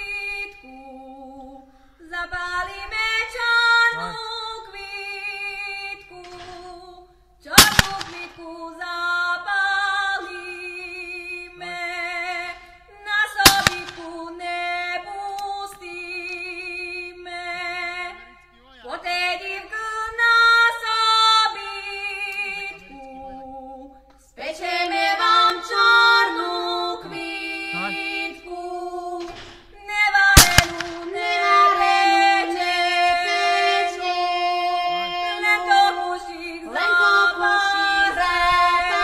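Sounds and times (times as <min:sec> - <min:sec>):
women singing a folk song: 0:00.0 - 0:39.0
shotgun shot: 0:07.6 - 0:08.4, 0:13.5 - 0:14.1, 0:30.4 - 0:31.1.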